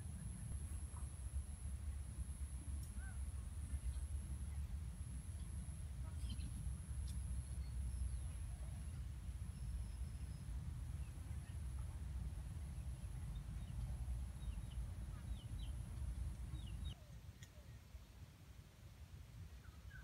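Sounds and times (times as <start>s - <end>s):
thin high steady whine: 0.0s - 16.9s
small birds chirping: 5.3s - 17.8s.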